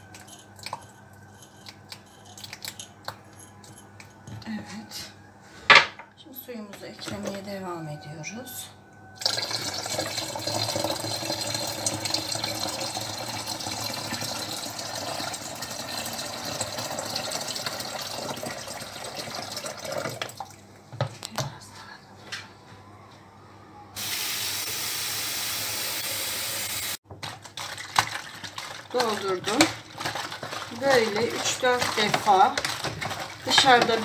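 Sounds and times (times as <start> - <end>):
water pouring into plastic bottle: 9.2 - 20.5, 27.5 - 34.0
steady hiss: 24.0 - 27.0
plastic containers knocking: 28.9 - 34.0.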